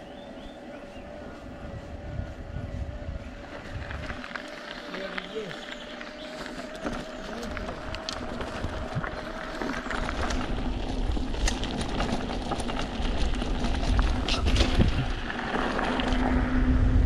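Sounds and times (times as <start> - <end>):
low hum: 0.0 - 17.0
low rumble: 7.6 - 17.0.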